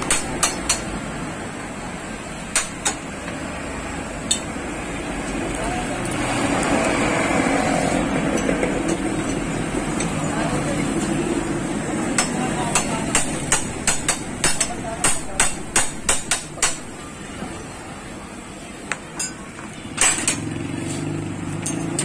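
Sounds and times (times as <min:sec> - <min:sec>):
hammer striking metal: 0:00.0 - 0:00.9, 0:02.5 - 0:03.0, 0:12.1 - 0:16.9.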